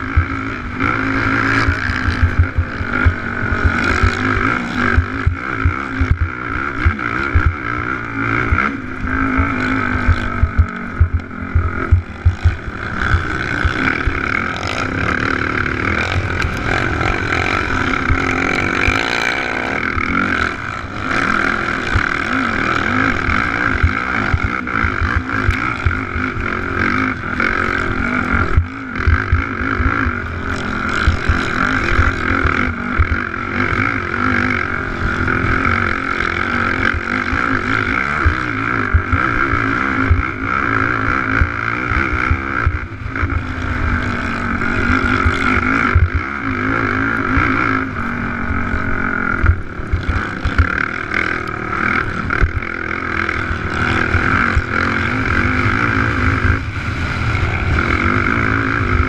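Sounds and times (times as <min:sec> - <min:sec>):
quad engine running hard: 0:00.0 - 0:59.0.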